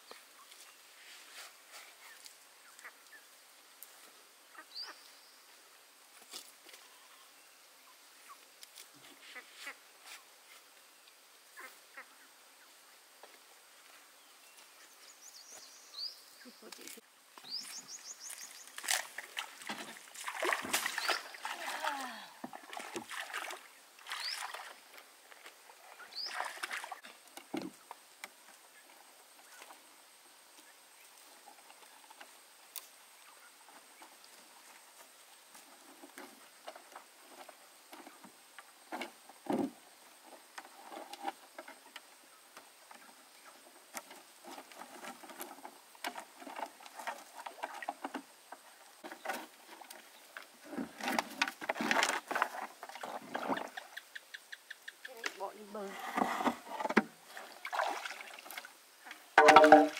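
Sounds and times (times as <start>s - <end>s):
water splashing: 18.8s - 25.0s, 26.2s - 27.1s, 57.2s - 59.9s
water lapping: 19.0s - 27.1s, 57.2s - 58.7s.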